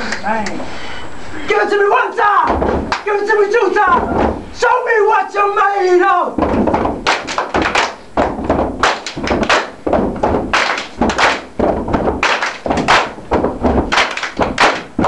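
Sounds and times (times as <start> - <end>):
hands clapping: 0.0 - 0.6, 2.8 - 3.2, 6.5 - 15.0
thudding foot stamps: 2.4 - 4.6, 6.3 - 15.0
hands slapping body: 2.5 - 3.1, 6.4 - 15.0.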